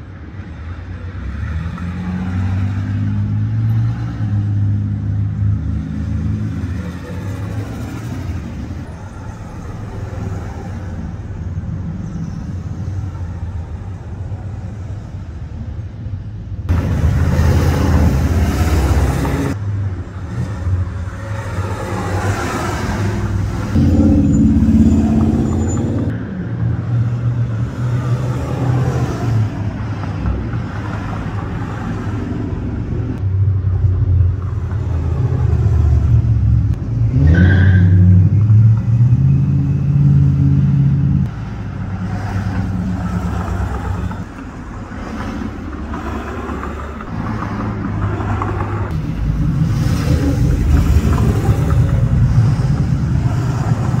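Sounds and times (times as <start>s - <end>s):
car engines driving past: 16.7s - 54.0s
engine revving: 22.4s - 26.2s.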